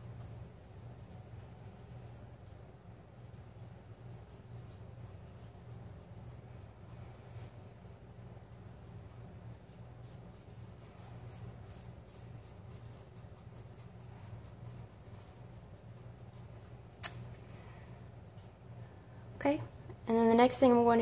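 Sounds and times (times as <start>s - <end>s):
steady low hum: 0.0s - 21.0s
pencil scratching on paper: 1.8s - 7.6s, 8.2s - 16.7s.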